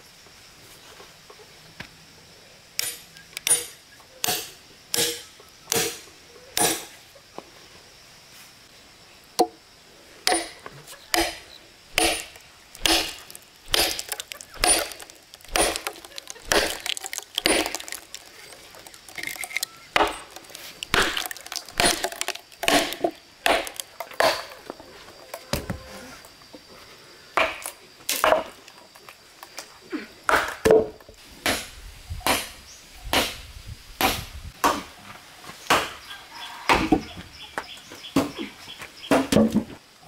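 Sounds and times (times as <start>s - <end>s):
axe chopping logs: 2.8s - 6.0s, 6.6s - 6.9s, 10.2s - 18.2s, 20.0s - 24.6s, 27.4s - 28.6s, 30.3s - 33.4s, 34.0s - 34.9s, 35.7s - 36.0s.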